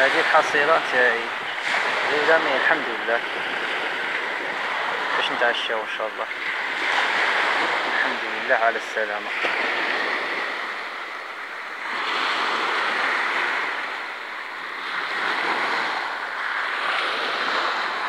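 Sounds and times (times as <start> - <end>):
waves washing up pebble beach: 0.0 - 18.0.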